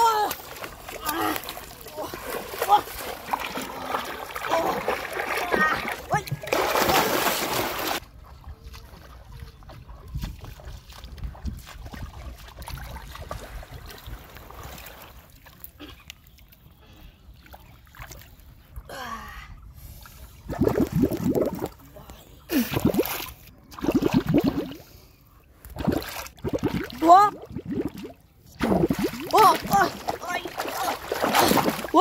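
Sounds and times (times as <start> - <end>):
river water sloshing and splashing: 0.0 - 18.8, 27.9 - 32.0.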